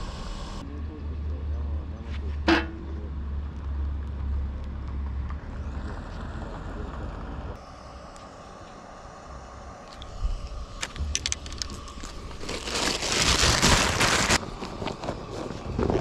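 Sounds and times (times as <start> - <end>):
plastic bag crinkling: 10.9 - 14.8.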